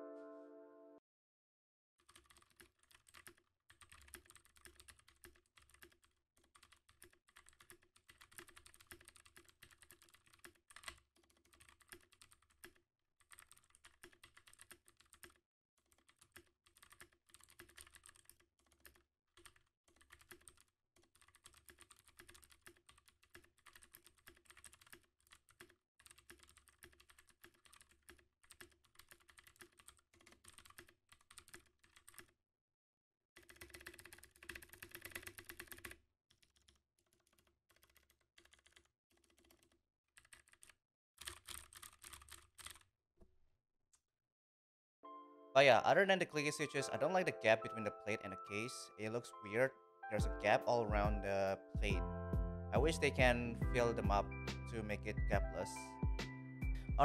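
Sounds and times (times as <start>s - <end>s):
fast typing on mechanical keyboard: 2.0s - 32.3s, 33.4s - 42.9s.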